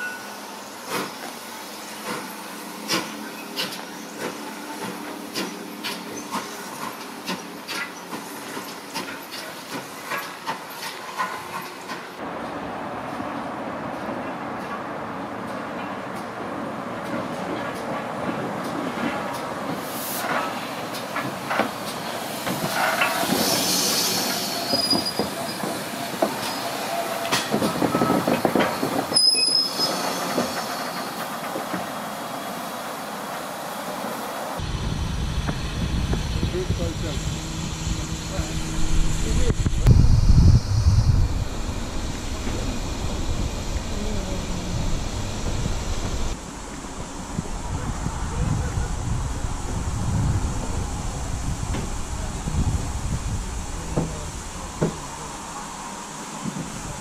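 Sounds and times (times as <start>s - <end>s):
wheels clanking over rail joints: 2.0s - 12.2s, 13.0s - 32.1s
wheel flange squeals: 22.9s - 31.2s
steam locomotive exhaust beats: 34.6s - 55.4s.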